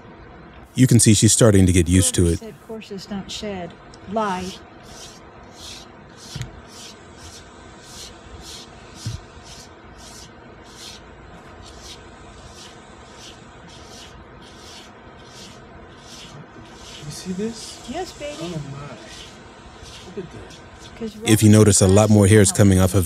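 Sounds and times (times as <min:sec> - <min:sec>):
faint steady hum: 0:00.0 - 0:23.0
shedding tool scraping dog coat: 0:04.9 - 0:21.4
soft thumps: 0:09.0 - 0:09.3.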